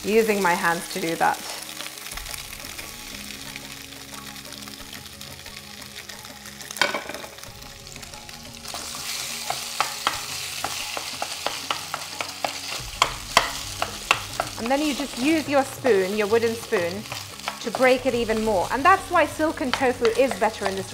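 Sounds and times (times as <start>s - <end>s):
food sizzling in oil: 0.0s - 20.9s
wooden spoon clacking on pan: 9.5s - 18.2s, 18.8s - 20.9s.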